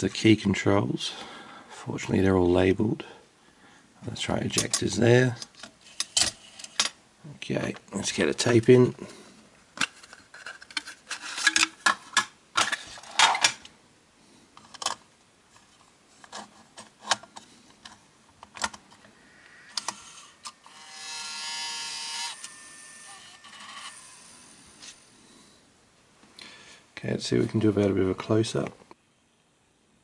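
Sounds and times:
plastic clicks and rustling: 9.8 - 13.7, 14.6 - 15.0, 15.6 - 19.1
faint whirr: 19.0 - 26.3
tape mechanism motor whine: 19.4 - 25.1.

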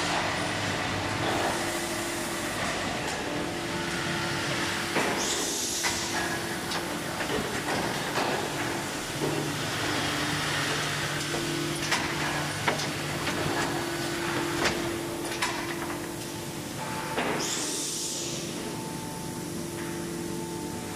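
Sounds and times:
machine hum: 0.0 - 20.9
sharp clicks and knocks: 11.2 - 13.8, 14.6 - 16.1
loud hiss bursts: 17.4 - 18.5.

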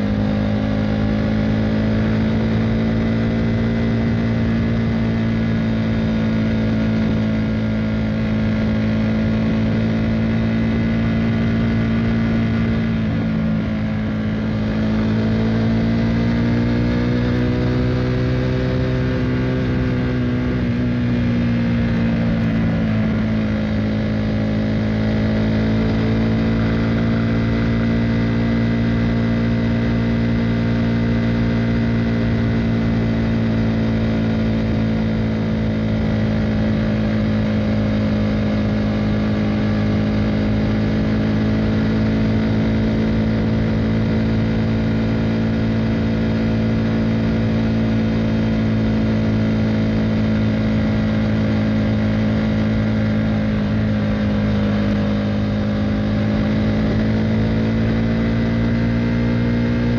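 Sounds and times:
motorcycle engine cruising: 0.0 - 59.9.

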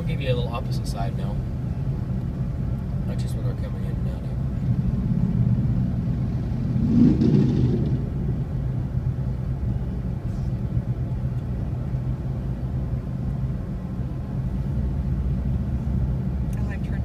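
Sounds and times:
traffic engine rumble: 0.0 - 17.0
motorcycle passing close: 5.1 - 8.4.

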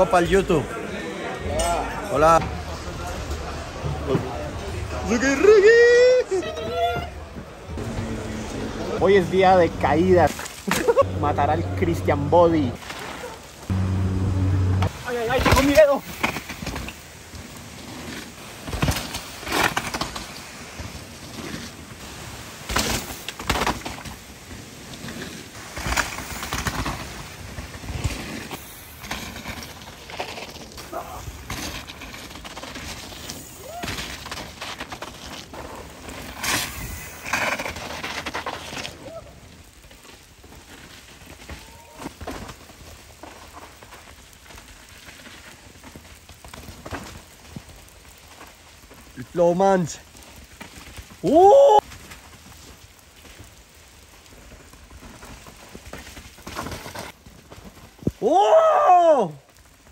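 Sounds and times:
bike tyre and riding noise: 0.0 - 59.9
noise surges: 7.2 - 18.9
sharp knocks of bikes on bumps: 22.6 - 38.9.

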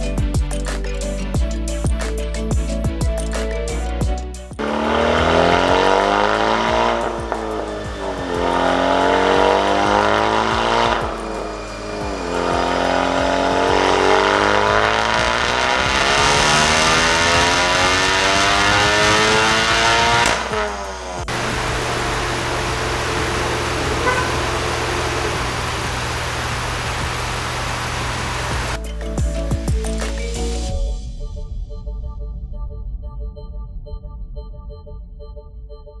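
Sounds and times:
turbocharged car engine revving: 4.6 - 28.8
steady low hum: 19.1 - 28.8.

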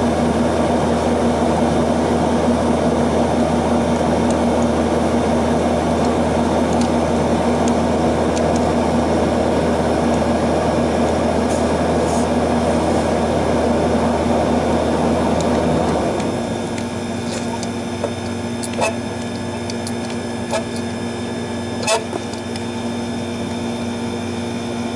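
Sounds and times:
air conditioner unit humming: 0.0 - 24.9
screwdriver clicking on metal: 16.8 - 20.8.

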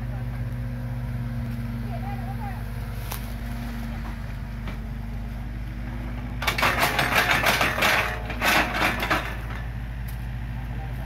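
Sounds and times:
excavator diesel engine running: 0.0 - 11.0
bucket clattering and scraping: 6.4 - 9.7.

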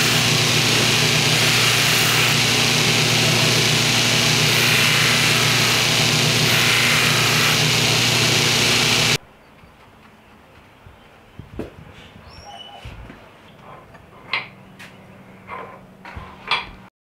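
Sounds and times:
abrasive hiss of polishing wheel: 0.0 - 9.2
motor hum: 0.0 - 9.2.

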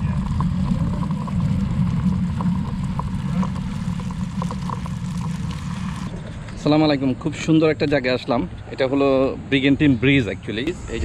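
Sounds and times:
low motor hum: 0.0 - 6.6.

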